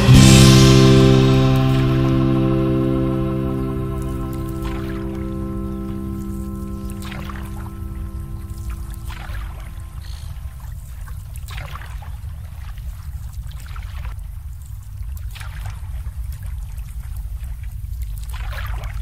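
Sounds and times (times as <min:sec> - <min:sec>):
steady low rumble: 0:00.0 - 0:10.0
water lapping: 0:02.4 - 0:19.0.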